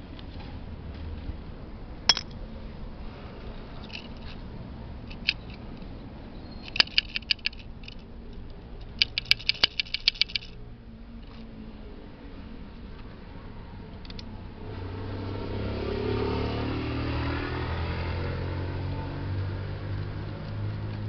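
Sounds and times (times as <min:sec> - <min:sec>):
carburetor metal clicks: 0:05.1 - 0:05.6, 0:06.6 - 0:10.6.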